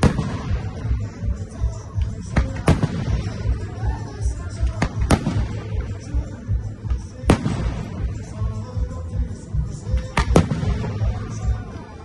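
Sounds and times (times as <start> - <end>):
fireworks bangs: 0.0 - 3.6, 4.6 - 6.2, 7.2 - 8.6, 9.9 - 11.6
music with steady beat: 0.0 - 12.0.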